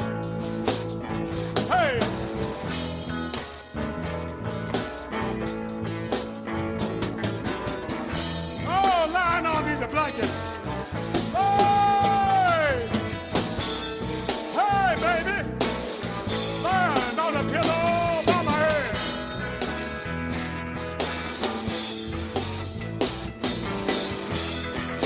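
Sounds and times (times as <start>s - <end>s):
blues band playing: 0.0s - 25.0s.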